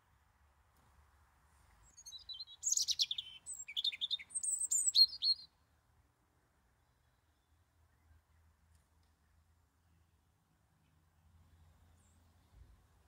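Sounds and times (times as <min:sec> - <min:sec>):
robin singing: 0:01.8 - 0:05.5.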